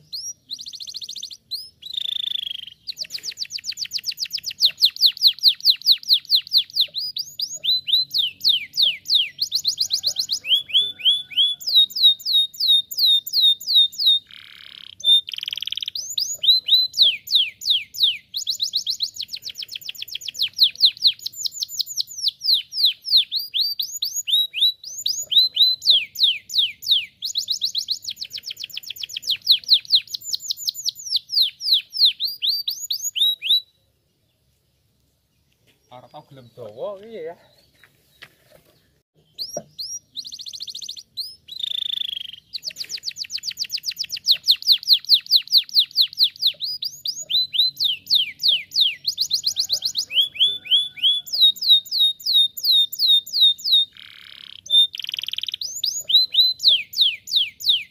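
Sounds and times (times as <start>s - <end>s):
canary singing trills: 0.0s - 34.3s, 39.2s - 57.9s.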